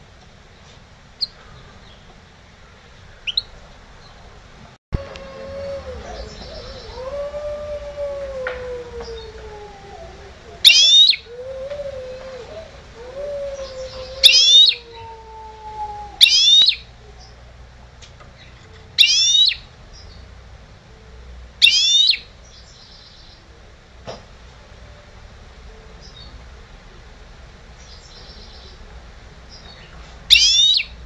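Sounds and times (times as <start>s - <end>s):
finch twittering song: 3.2s - 4.2s, 10.6s - 11.3s, 13.6s - 14.8s, 16.2s - 17.4s, 18.4s - 20.2s, 21.6s - 23.4s, 29.5s - 31.0s
faint low wavering howl: 5.0s - 23.8s, 24.5s - 29.7s.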